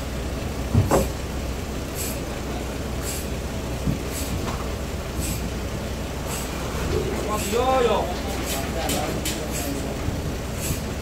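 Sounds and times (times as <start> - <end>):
steady low hum: 0.0 - 11.0
wooden slabs knocking: 0.7 - 1.1.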